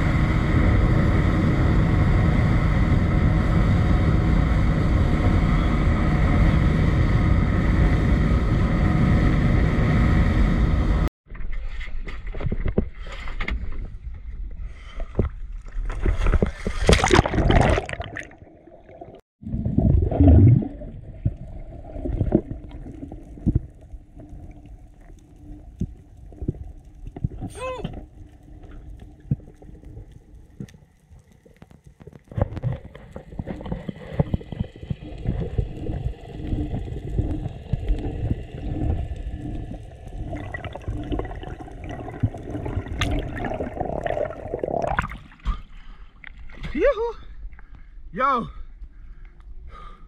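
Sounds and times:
water and bubbles rushing: 0.0 - 46.8
low underwater churning: 12.8 - 50.0.

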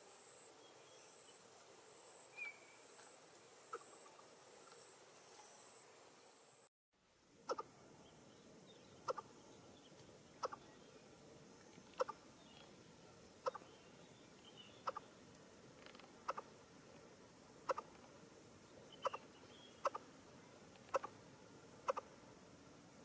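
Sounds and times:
faint chirps: 0.0 - 6.7, 18.6 - 21.2
bird double clicking calls: 7.5 - 7.7, 9.0 - 9.3, 10.4 - 10.6, 12.0 - 12.2, 13.4 - 13.7, 14.8 - 15.0, 15.8 - 16.5, 17.6 - 18.0, 19.0 - 20.0, 20.8 - 21.2, 21.9 - 22.1.

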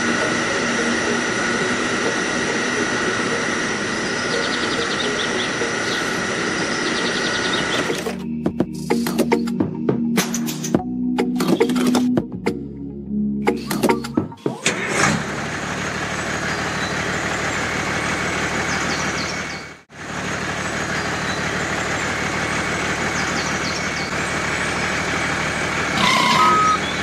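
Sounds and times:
truck engine running: 0.0 - 12.7, 13.4 - 27.0
reversing beeps: 25.9 - 27.0.

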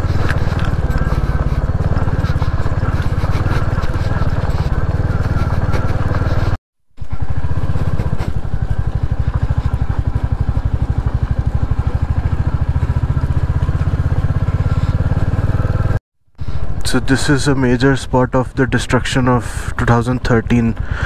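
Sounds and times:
motorcycle engine thumping: 0.0 - 16.0.

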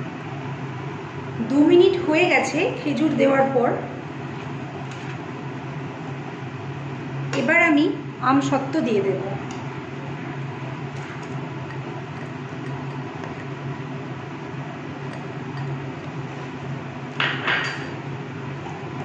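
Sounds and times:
syrup boiling in a pan: 10.3 - 17.4.

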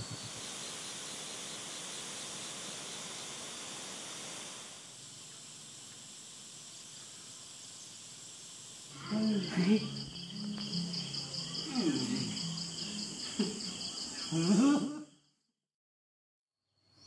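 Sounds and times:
steady hiss: 0.0 - 14.6
crickets trilling: 0.0 - 15.3
people talking: 9.0 - 10.0, 11.6 - 12.4, 14.3 - 15.0.

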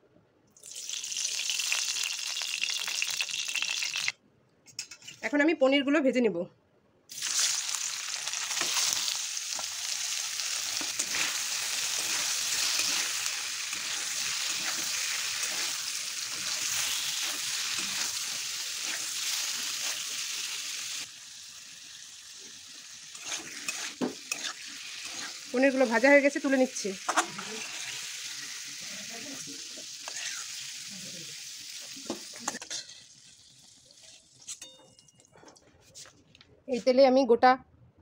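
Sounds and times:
food sizzling in hot oil: 0.6 - 4.1, 7.1 - 34.5
spatula scraping and tapping pan: 23.2 - 25.3.

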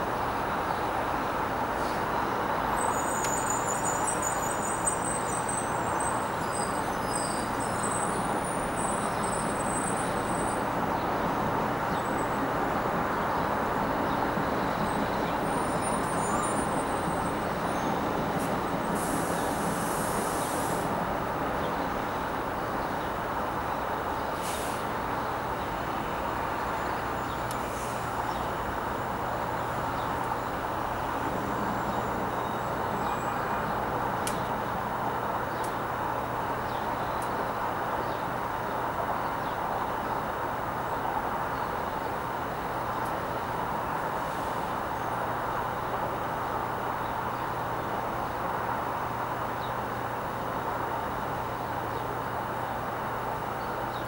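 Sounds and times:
city road traffic: 0.0 - 54.0
short burst of hiss: 19.0 - 20.9, 24.4 - 24.9.

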